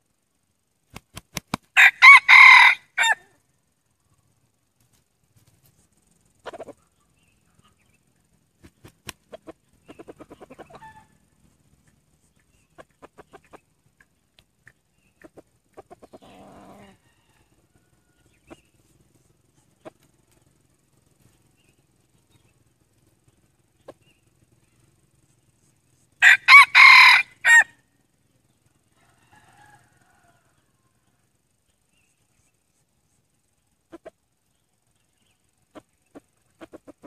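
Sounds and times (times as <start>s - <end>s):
roosters clucking: 4.0s - 31.2s, 33.4s - 37.0s
sharp ticks: 11.7s - 16.1s.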